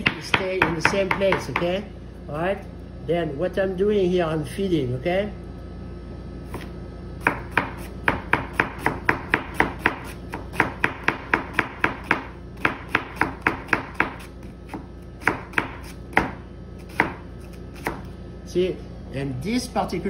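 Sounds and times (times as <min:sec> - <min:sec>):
knife tapping on cutting board: 0:00.0 - 0:01.7.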